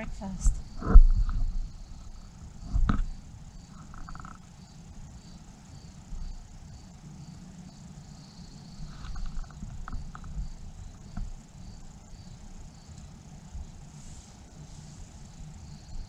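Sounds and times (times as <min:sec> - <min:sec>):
low rumble: 0:00.0 - 0:04.2.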